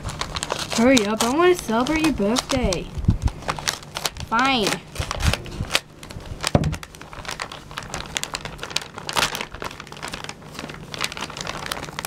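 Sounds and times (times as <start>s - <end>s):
wrapping paper crinkling: 0.0s - 12.0s
scissors snipping paper: 0.4s - 2.9s.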